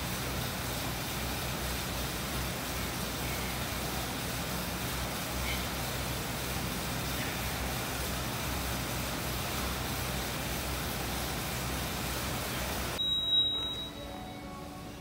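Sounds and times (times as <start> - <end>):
steady hiss with low hum: 0.0 - 15.0
thin high tone: 12.5 - 15.0.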